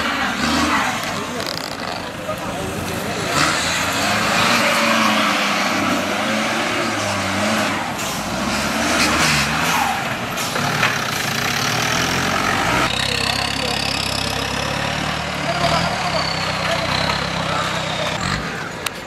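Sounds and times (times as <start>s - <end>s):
jeep engine revving under load: 0.0s - 18.8s.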